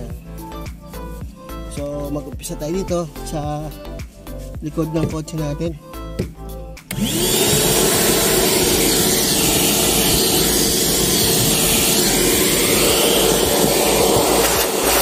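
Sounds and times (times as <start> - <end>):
vacuum cleaner running: 6.9 - 15.0.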